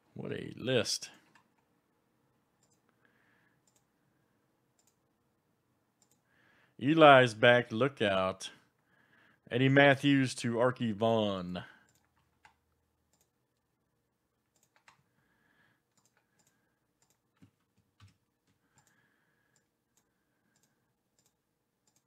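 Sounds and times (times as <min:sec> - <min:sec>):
mouse and keyboard clicks: 0:14.5 - 0:15.0.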